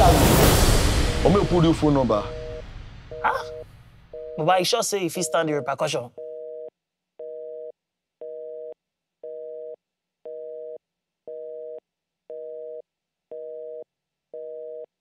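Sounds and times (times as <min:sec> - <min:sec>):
telephone busy signal beeps: 0:02.5 - 0:04.5, 0:05.1 - 0:08.7.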